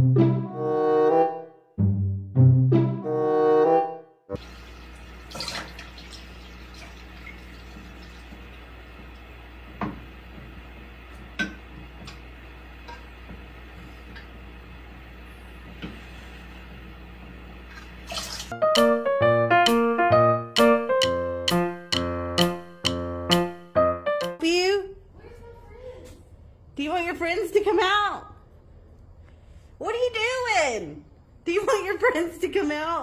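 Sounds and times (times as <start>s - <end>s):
electric piano music: 0.0s - 1.5s, 2.3s - 4.5s, 18.5s - 24.5s
low room hum: 4.4s - 18.5s, 24.4s - 33.0s.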